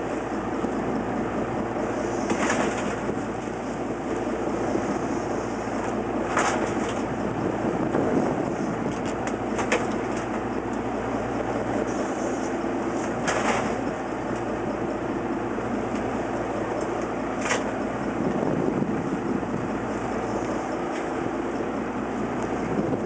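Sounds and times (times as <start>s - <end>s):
boat engine drone: 0.0s - 23.0s
water and wind noise: 0.0s - 23.0s.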